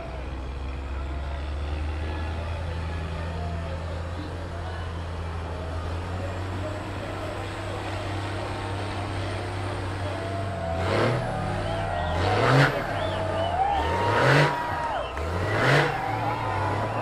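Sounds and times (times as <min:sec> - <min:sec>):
engine revving: 0:05.1 - 0:17.0.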